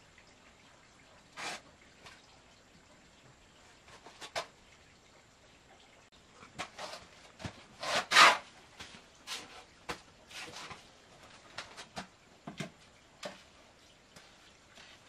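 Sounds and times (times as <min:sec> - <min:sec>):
hand tool scraping concrete: 0:06.6 - 0:08.5.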